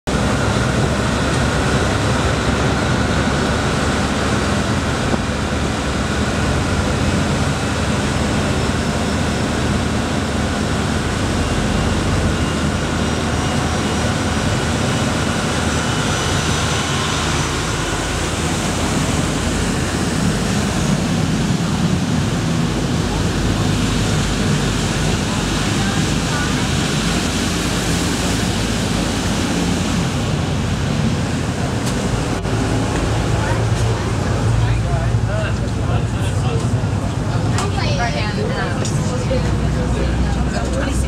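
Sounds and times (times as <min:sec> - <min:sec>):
boat engines droning: 0:00.1 - 0:41.0
wind and water rushing: 0:00.1 - 0:41.0.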